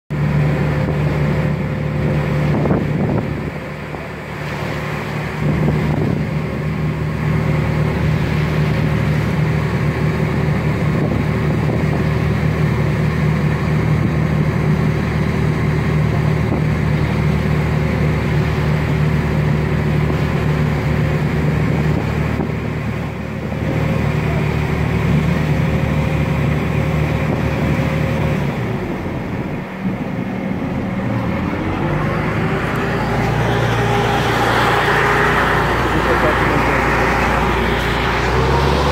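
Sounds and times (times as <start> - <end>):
boat engine humming: 0.1 - 38.9
wind on microphone: 0.4 - 12.8, 16.1 - 30.2.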